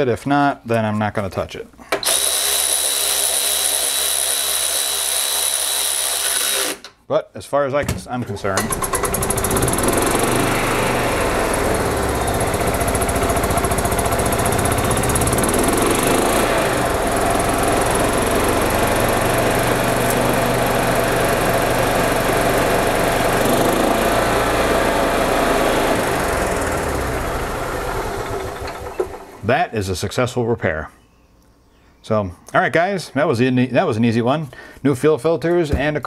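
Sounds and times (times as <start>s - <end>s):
golf cart engine running: 8.6s - 29.5s.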